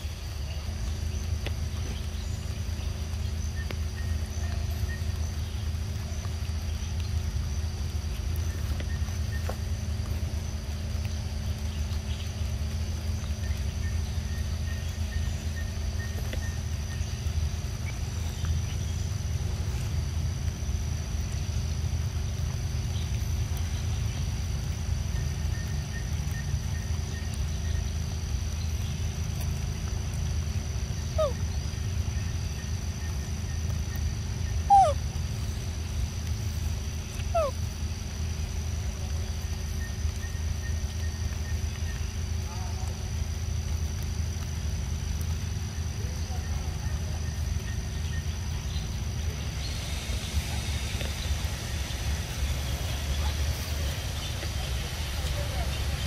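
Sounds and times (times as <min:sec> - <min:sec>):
high insect drone: 0:00.0 - 0:56.0
low rumble with hum: 0:00.0 - 0:56.0
animal whimpering calls: 0:31.1 - 0:31.4, 0:34.6 - 0:35.0, 0:37.2 - 0:37.7.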